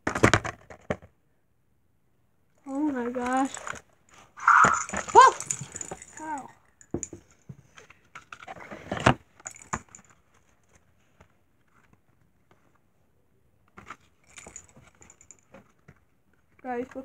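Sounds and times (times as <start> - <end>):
quick clicks and scrapes: 3.4 - 6.1.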